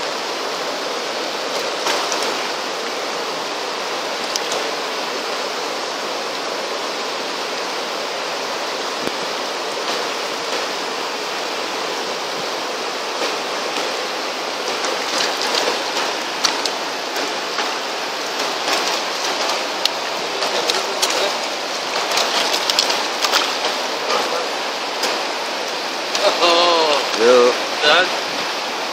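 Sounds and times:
stream rushing over rocks: 0.0s - 28.9s
sharp splashes and clicks: 1.5s - 3.0s, 4.2s - 4.8s, 9.0s - 10.8s, 13.1s - 26.4s.

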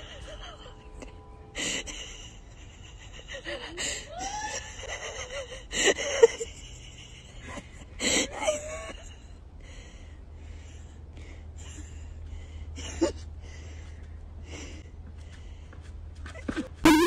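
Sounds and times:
woman laughing nervously: 0.0s - 9.2s.

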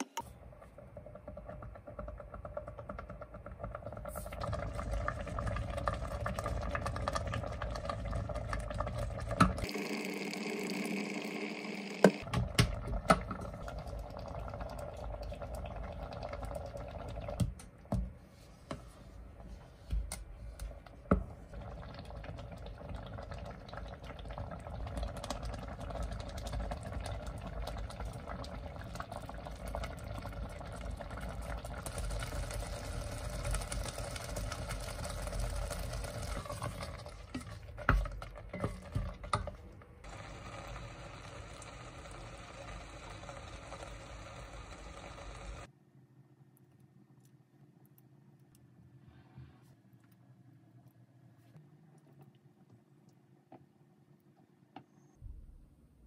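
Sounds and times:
jam simmering in a pot: 0.2s - 45.7s
steady hum: 40.1s - 45.8s.

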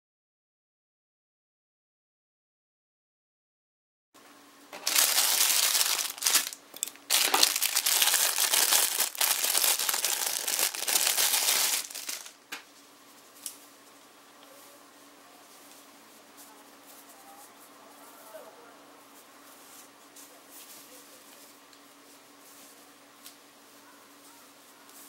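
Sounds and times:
plastic bag crinkling: 4.8s - 12.4s.

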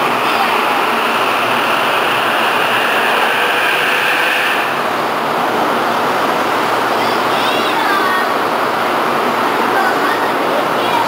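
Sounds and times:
high hiss: 0.0s - 5.4s
train wheels rushing past: 0.0s - 9.6s.

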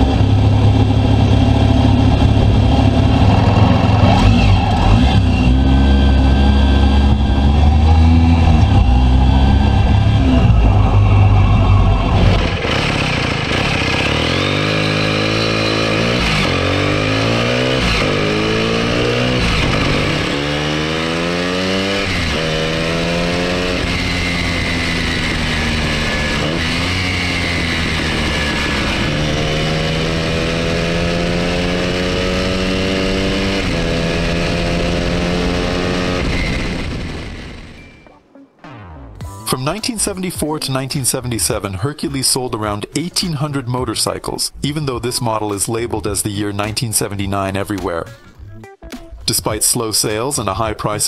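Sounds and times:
motorcycle engine accelerating through gears: 0.0s - 39.2s.

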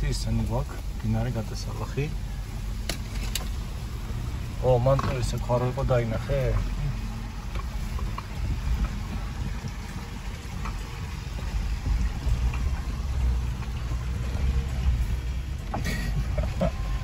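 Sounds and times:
vehicle engine and tyres rumbling: 0.0s - 17.0s
small knocks and rattles: 2.8s - 3.6s.

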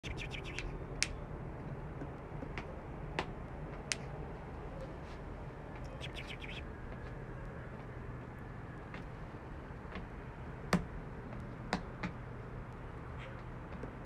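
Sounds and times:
bird chirps: 0.0s - 0.8s, 5.8s - 6.7s
steady low hum: 0.0s - 13.7s.

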